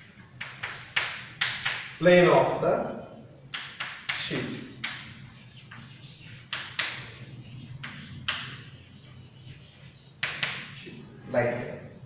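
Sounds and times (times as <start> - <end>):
chalk writing on blackboard: 0.0 - 2.0, 3.5 - 10.8.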